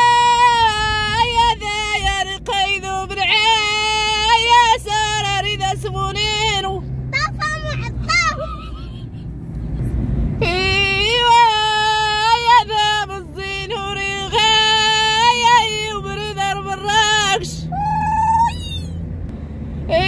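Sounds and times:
woman singing unaccompanied chant: 0.0s - 6.8s, 10.4s - 17.7s
car driving rumble: 0.0s - 20.0s.

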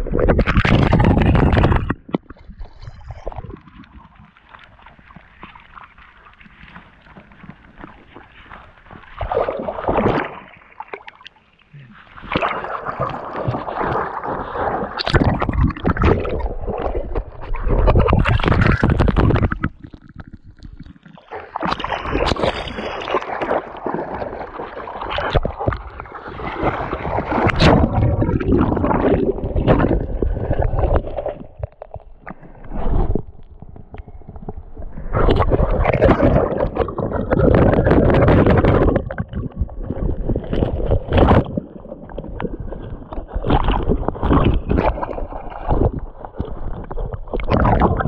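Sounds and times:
river water splashing: 9.2s - 11.1s.

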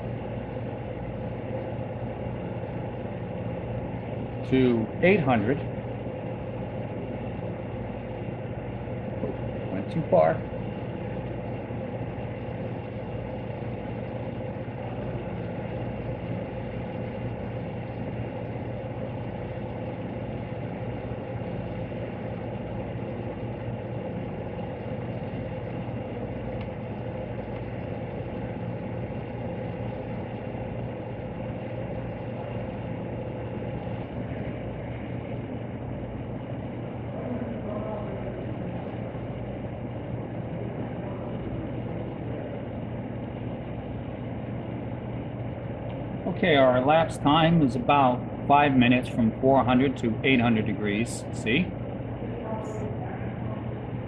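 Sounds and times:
faint constant tones: 0.0s - 54.0s
low machine hum: 0.0s - 54.0s.

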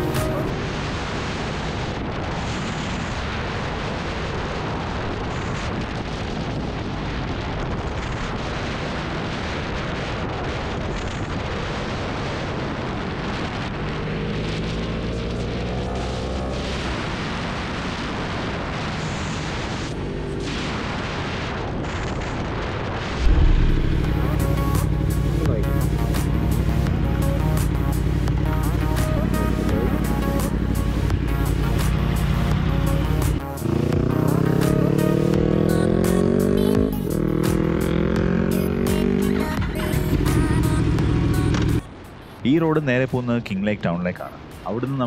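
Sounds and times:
wind rushing over microphone: 0.0s - 38.8s
motorcycle engine accelerating: 13.8s - 17.2s, 23.2s - 41.8s
sudden loud sound: 23.2s - 27.0s.

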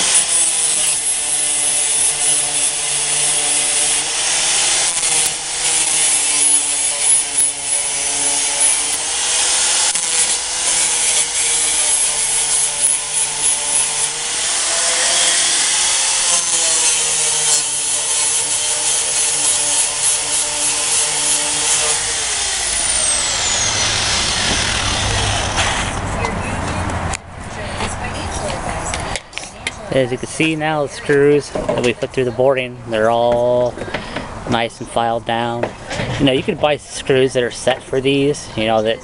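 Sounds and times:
angle grinder grinding metal: 0.0s - 26.1s.

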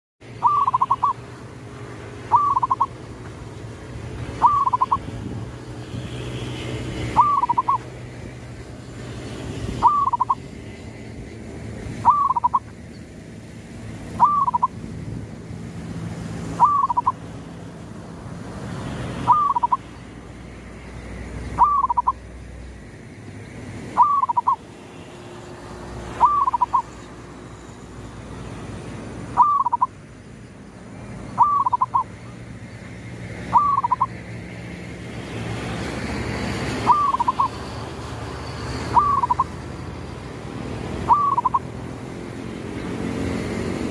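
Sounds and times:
dove cooing: 0.4s - 1.3s, 2.2s - 3.0s, 4.4s - 5.2s, 7.1s - 7.9s, 9.8s - 10.5s, 12.0s - 12.7s, 14.1s - 14.8s, 16.6s - 17.3s, 19.2s - 19.9s, 21.6s - 22.2s, 24.0s - 24.6s, 26.2s - 26.9s, 29.4s - 29.9s, 31.4s - 32.1s, 33.5s - 34.2s, 36.8s - 37.6s, 38.9s - 39.6s, 41.0s - 41.7s.

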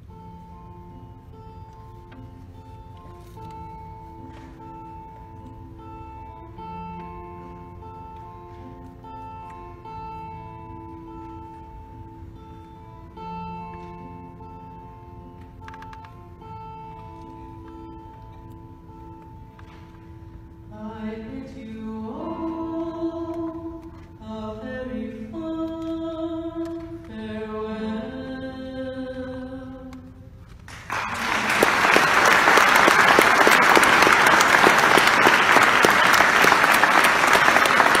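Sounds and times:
audience applause: 30.7s - 38.0s.

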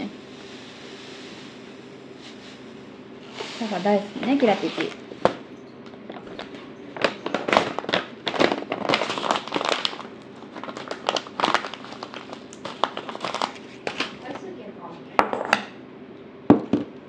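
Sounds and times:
plastic pouch crinkling: 6.1s - 14.4s.

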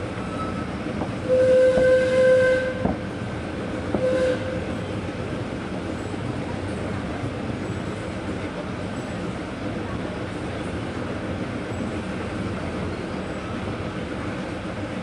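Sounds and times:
train rumbling along track: 0.0s - 15.0s
locomotive horn blasts: 0.3s - 3.0s, 4.0s - 4.7s.

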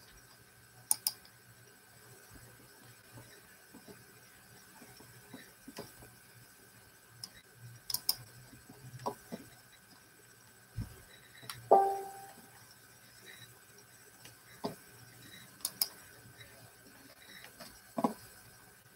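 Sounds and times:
small clicks and taps of objects: 0.0s - 1.4s, 4.8s - 6.1s, 7.2s - 9.5s, 15.6s - 16.0s, 17.3s - 18.3s.

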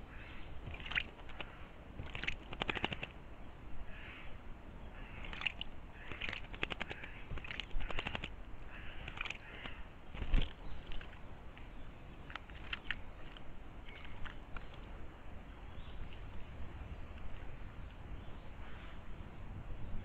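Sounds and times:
harsh rasping bird calls: 0.0s - 3.2s, 3.8s - 16.2s.

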